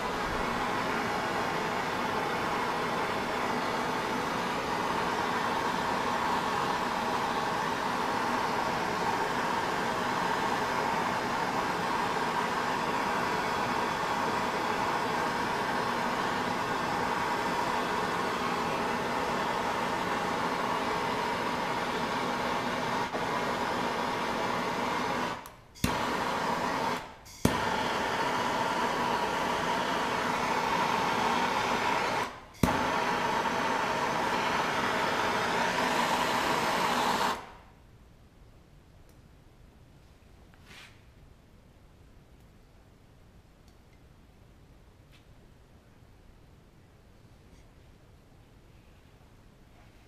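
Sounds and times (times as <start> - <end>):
blowtorch flame hissing: 0.0 - 37.6
blowtorch igniter click: 7.5 - 37.6.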